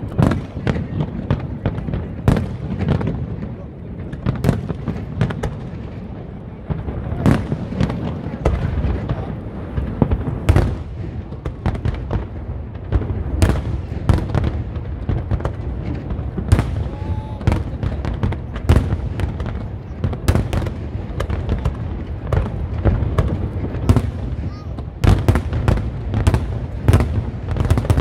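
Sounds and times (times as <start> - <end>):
fireworks sharp bangs: 0.0 - 28.0
low rumble of fireworks bursts: 0.0 - 28.0.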